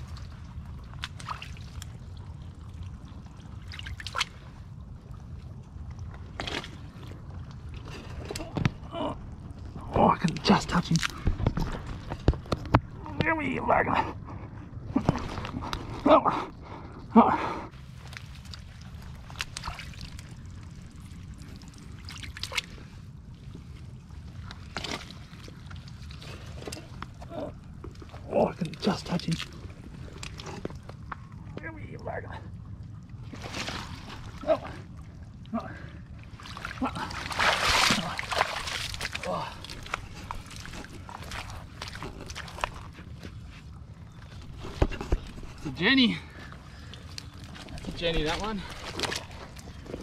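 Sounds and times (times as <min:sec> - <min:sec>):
mud and water squelching: 0:00.0 - 0:17.0, 0:17.7 - 0:50.0
steady low rumble: 0:00.0 - 0:50.0
short sharp splashes: 0:36.3 - 0:42.6.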